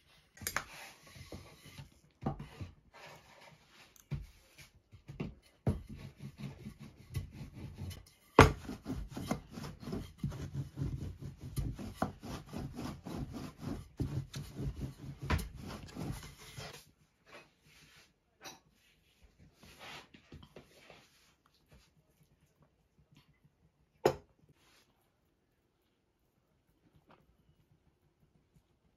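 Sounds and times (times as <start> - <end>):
rubbing and scraping on wood: 0.4 - 22.0.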